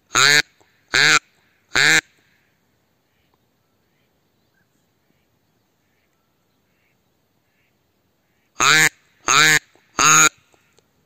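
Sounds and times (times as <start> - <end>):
duck call quacks: 0.1 - 2.2, 8.3 - 10.4.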